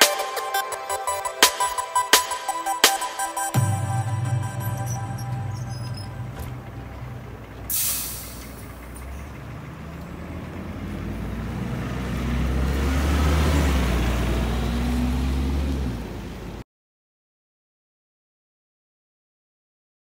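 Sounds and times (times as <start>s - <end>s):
bus engine drone: 3.5s - 16.6s
bus air brake hiss: 7.7s - 8.8s.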